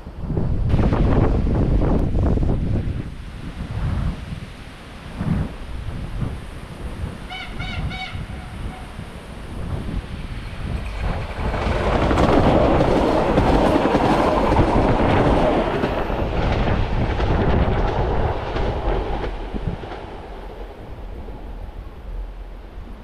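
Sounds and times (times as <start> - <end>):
electric train passing: 0.0 - 23.0
wheels clicking over rail joints: 10.4 - 20.8.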